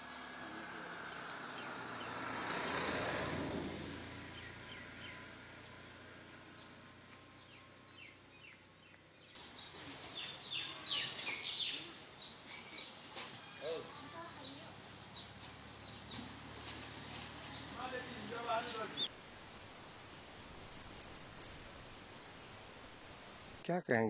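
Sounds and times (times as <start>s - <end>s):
small birds chirping: 3.8s - 23.6s
broad rushing noise: 17.8s - 23.6s.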